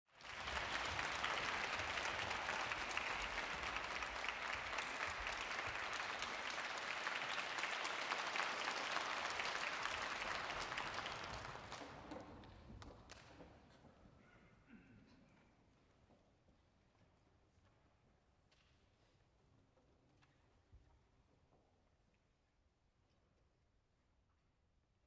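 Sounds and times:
audience applauding: 0.1s - 13.3s.

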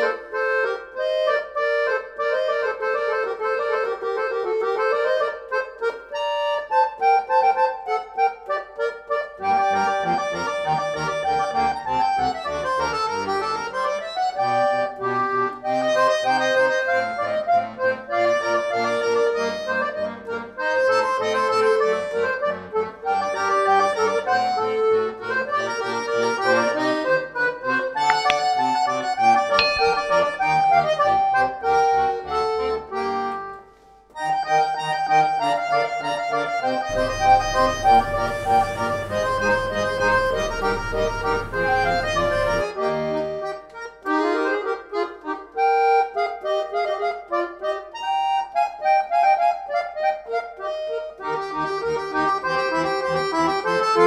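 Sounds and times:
instrumental music: 0.0s - 54.0s
low hum and hiss: 36.9s - 42.6s.

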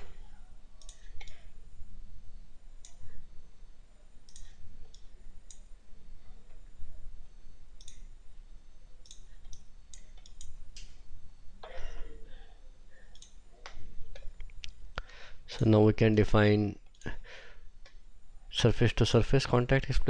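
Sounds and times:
low steady hum: 0.0s - 20.0s
computer mouse clicking: 0.8s - 1.4s, 4.2s - 5.7s, 7.8s - 8.0s, 9.0s - 10.9s.

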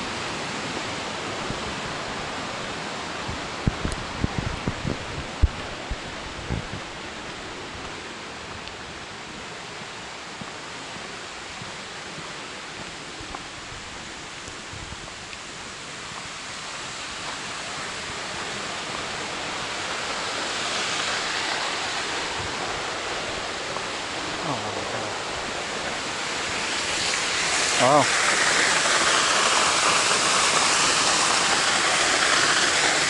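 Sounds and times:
rushing outdoor hiss: 0.0s - 33.0s
footsteps on dirt trail: 9.8s - 10.6s.

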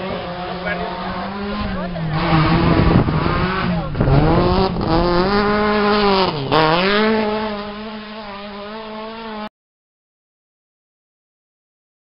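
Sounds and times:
rally car engine at full throttle: 0.0s - 9.5s.

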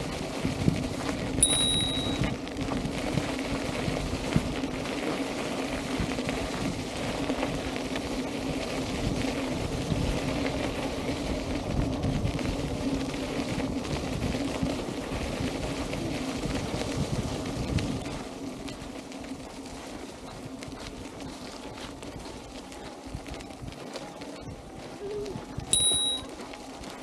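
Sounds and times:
low hum: 1.4s - 2.4s
tyre crunching on gravel: 16.5s - 25.6s.

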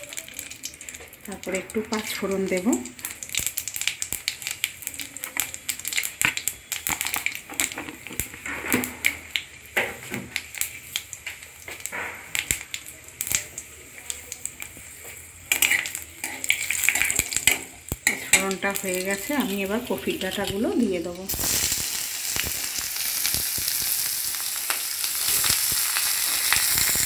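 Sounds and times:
seeds crackling in hot oil: 0.0s - 27.0s
metal spatula in pan: 15.4s - 20.6s.

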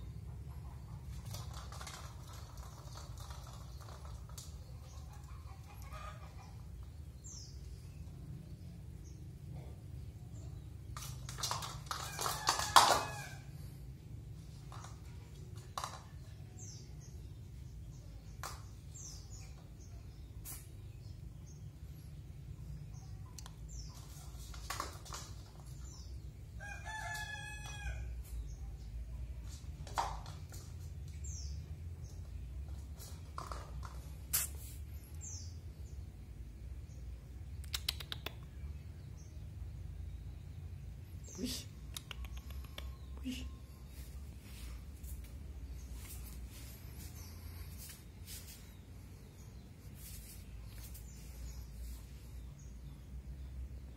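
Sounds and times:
small birds chirping: 0.0s - 53.9s
rooster crowing: 12.0s - 13.6s, 26.6s - 28.2s.

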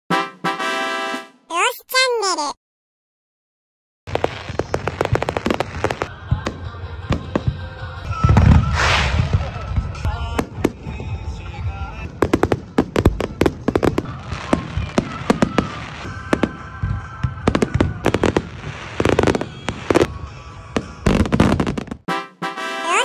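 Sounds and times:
deep fireworks booms: 4.1s - 22.1s
fireworks bangs and crackles: 4.1s - 22.1s.

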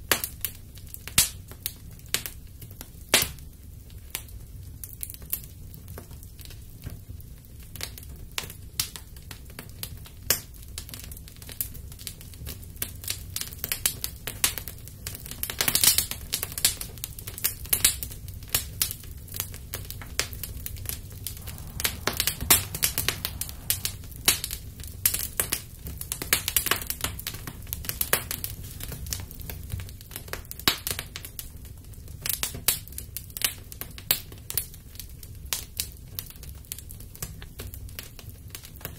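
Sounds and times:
fire crackling and popping: 10.4s - 38.9s
steady low rumble: 21.1s - 26.1s.

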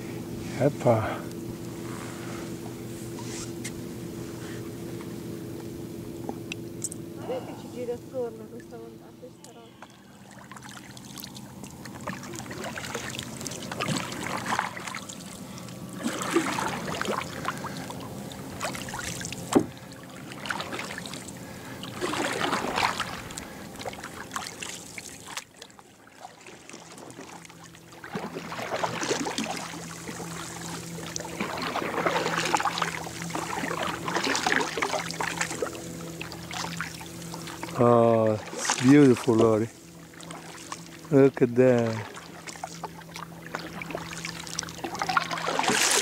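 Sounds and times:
paddles splashing in water: 9.5s - 46.0s.

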